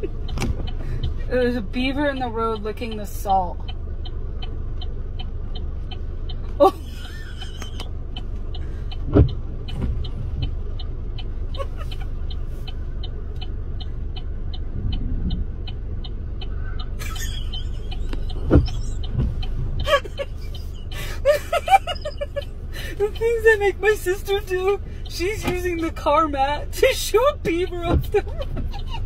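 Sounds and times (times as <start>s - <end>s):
car engine idling: 0.0s - 29.0s
dashboard electronic ticking: 0.0s - 29.0s
windshield wiper swish: 9.0s - 10.9s, 14.0s - 15.8s, 18.1s - 20.3s, 26.9s - 29.0s.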